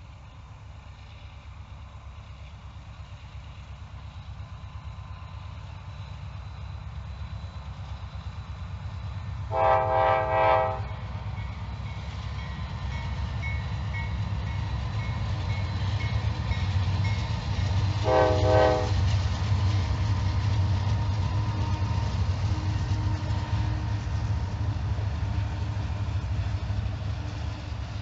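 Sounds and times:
diesel locomotive rumble: 0:00.0 - 0:28.0
locomotive air horn chord: 0:09.5 - 0:11.0, 0:18.0 - 0:19.0.

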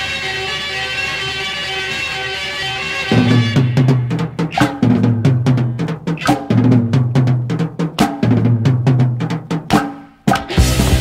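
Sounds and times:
rapid snare and bass drum hits: 0:03.1 - 0:11.0
sustained bass line: 0:10.5 - 0:11.0.

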